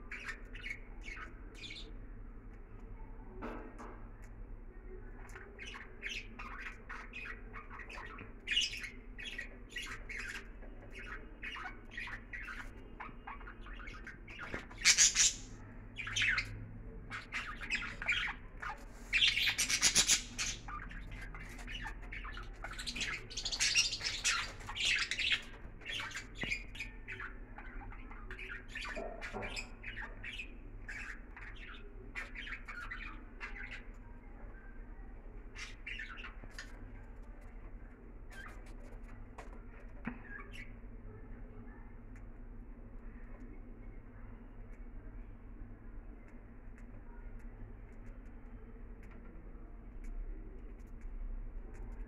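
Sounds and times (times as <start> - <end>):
budgerigars chirping: 5.6 - 33.8.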